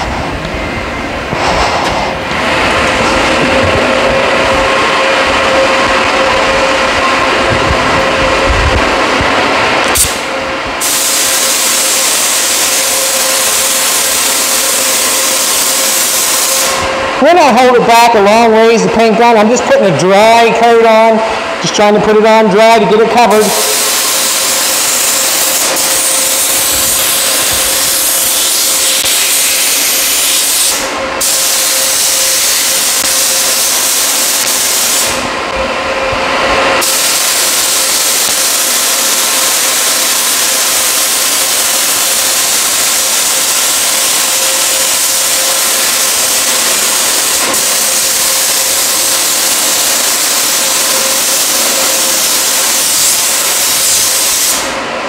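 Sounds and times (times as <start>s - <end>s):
paint spray gun hissing: 10.0s - 16.8s, 23.4s - 35.2s, 36.8s - 54.7s.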